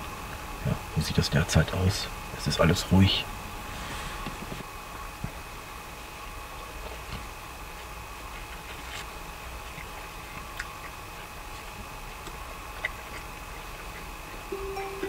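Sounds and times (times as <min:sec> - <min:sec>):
man chewing food: 0:06.2 - 0:14.6
thin high whine: 0:14.5 - 0:15.0.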